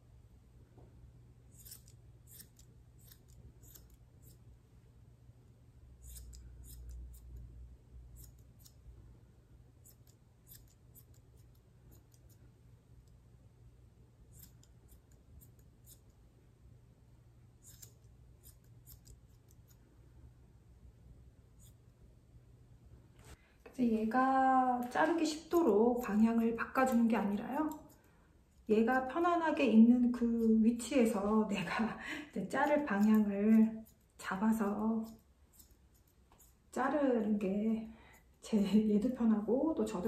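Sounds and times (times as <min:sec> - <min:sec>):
scissors snipping hair: 0:01.5 - 0:04.4, 0:06.0 - 0:07.5, 0:08.1 - 0:08.9, 0:09.8 - 0:13.2, 0:14.3 - 0:16.2, 0:17.6 - 0:19.9, 0:21.6 - 0:21.8, 0:24.7 - 0:37.4, 0:38.1 - 0:39.2.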